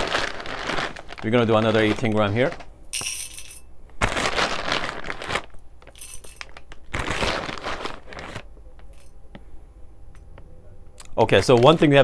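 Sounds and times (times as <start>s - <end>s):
coffee beans rattling into metal cup: 3.0s - 3.7s, 4.4s - 8.0s.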